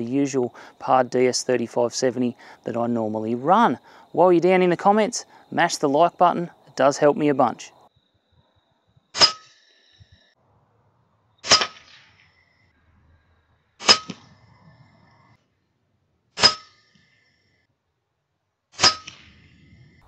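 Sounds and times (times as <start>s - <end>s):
air rifle shots: 11.4s - 12.2s.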